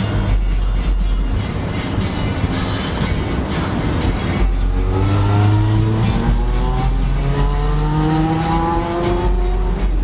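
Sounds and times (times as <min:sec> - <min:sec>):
vehicle engine accelerating: 0:02.7 - 0:10.0.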